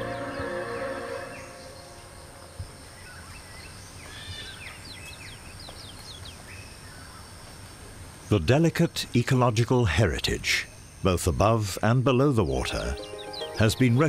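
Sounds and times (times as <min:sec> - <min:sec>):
background music: 0:00.0 - 0:02.7, 0:12.6 - 0:14.0
bird chirps: 0:00.0 - 0:07.2, 0:12.5 - 0:14.0.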